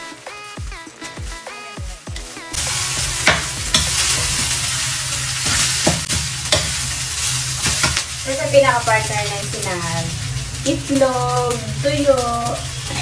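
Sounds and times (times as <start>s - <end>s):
rice sizzling in a wok: 0.0s - 13.0s
metal spatula scraping a pan: 2.6s - 10.6s.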